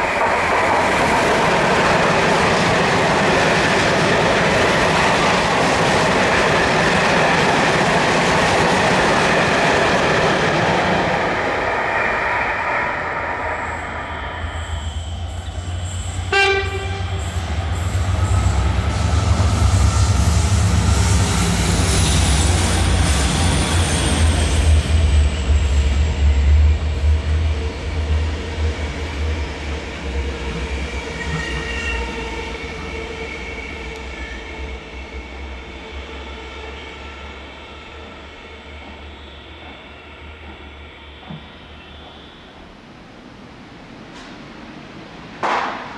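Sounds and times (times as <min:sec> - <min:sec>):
train coaches rolling past: 0:00.0 - 0:45.9
train horn: 0:15.4 - 0:18.1.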